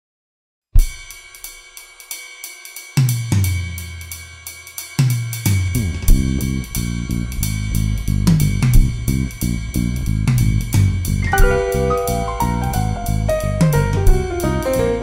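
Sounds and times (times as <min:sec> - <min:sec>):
drum kit hit and cymbal beat: 0:00.8 - 0:15.0
long low notes: 0:05.8 - 0:15.0
live rock band playing: 0:11.3 - 0:15.0.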